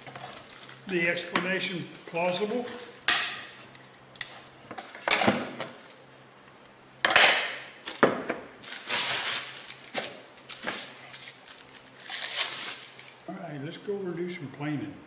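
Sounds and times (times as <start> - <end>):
plastic sheeting crinkling: 0.0 - 3.0, 8.6 - 13.2.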